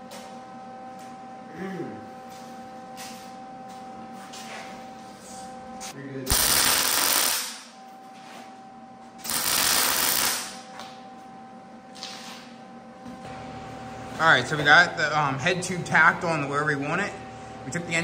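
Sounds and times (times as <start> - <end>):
steady low hum: 0.0 - 18.0
welding arc bursts: 6.3 - 7.7, 9.2 - 10.6.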